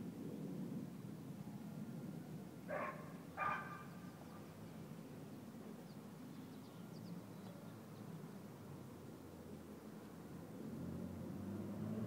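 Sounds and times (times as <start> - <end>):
dog barking: 2.7 - 4.0.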